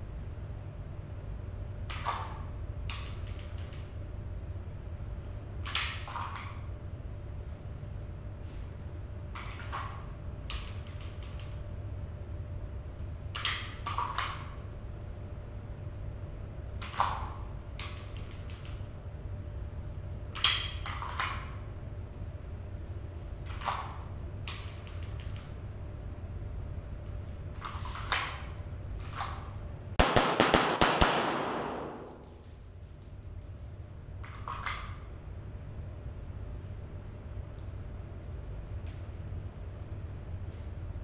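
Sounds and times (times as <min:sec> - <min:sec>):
sharp gunshot cracks: 0:30.0 - 0:32.2
pistol shots echoing indoors: 0:30.0 - 0:33.5.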